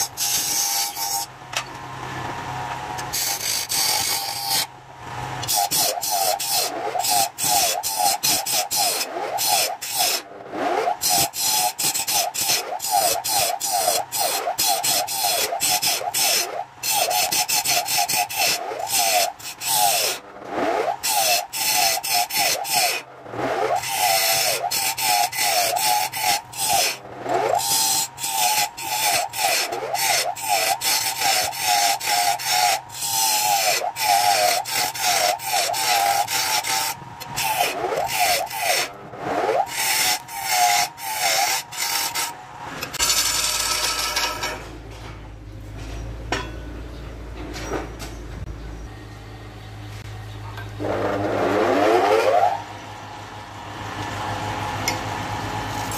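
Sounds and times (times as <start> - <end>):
lathe tool scraping wood: 0.0 - 1.3, 3.0 - 44.6, 50.8 - 52.7.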